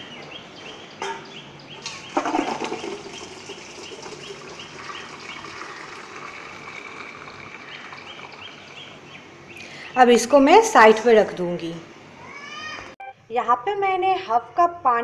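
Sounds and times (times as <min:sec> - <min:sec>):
bird chirping: 0:00.0 - 0:10.4
water splashing and draining: 0:01.9 - 0:09.0.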